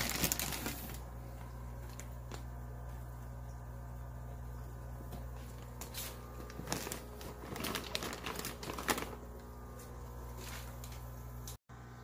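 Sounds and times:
plastic bags of water crinkling: 0:00.0 - 0:02.6, 0:05.2 - 0:11.0
steady low hum: 0:00.0 - 0:12.0.

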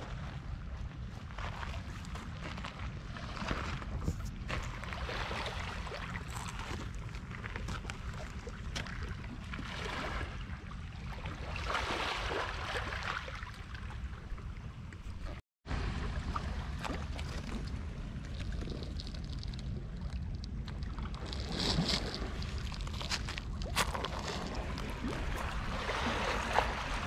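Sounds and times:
wind rumbling on microphone: 0:00.0 - 0:27.0
surf washing on shore: 0:24.2 - 0:27.0.

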